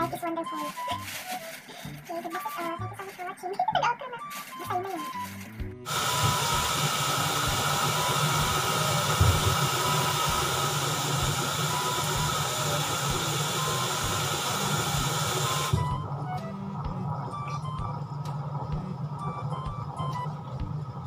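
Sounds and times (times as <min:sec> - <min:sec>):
faint background music: 0:00.0 - 0:21.0
loud steady hiss: 0:05.9 - 0:15.8.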